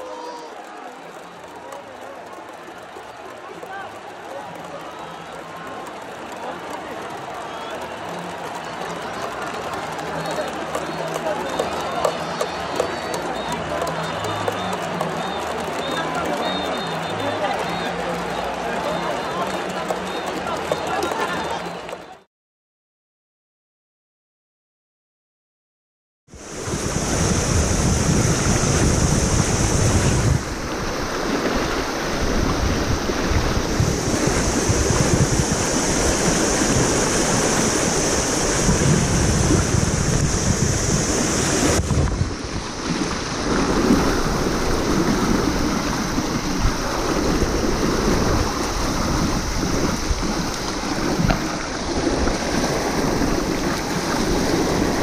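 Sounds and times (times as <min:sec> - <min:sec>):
river rapids rushing: 0:00.0 - 0:22.2, 0:26.4 - 0:55.0
wind buffeting microphone: 0:26.4 - 0:55.0.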